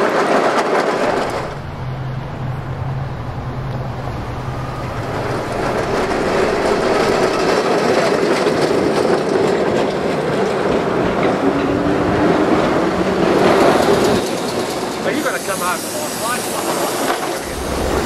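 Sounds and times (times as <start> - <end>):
tram wheels rumbling on rails: 0.0 - 18.0
steady hum: 1.0 - 8.3, 17.4 - 18.0.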